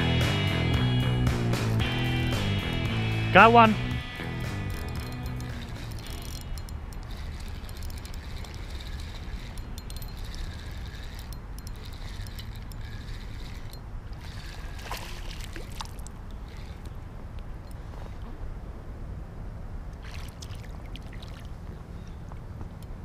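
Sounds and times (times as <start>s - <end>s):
steady low rumble: 0.0s - 7.1s
sharp clicks: 4.2s - 14.6s
water sloshing and gurgling: 5.8s - 18.5s, 19.9s - 22.4s.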